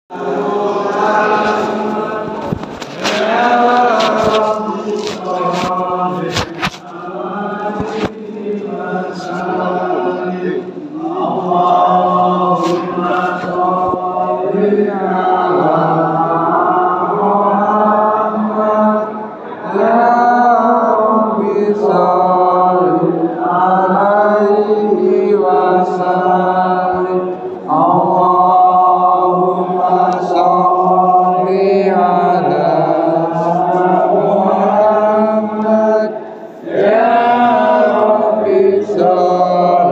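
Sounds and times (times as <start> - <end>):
men chanting: 0.1 - 39.9
man chanting devotional praise: 0.4 - 19.1
cloth rustling on phone: 2.4 - 7.0.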